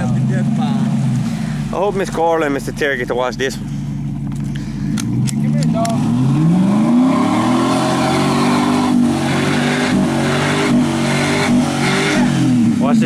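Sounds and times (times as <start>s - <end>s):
wheels churning mud and water: 0.0s - 3.7s
truck engine revving: 0.0s - 13.0s.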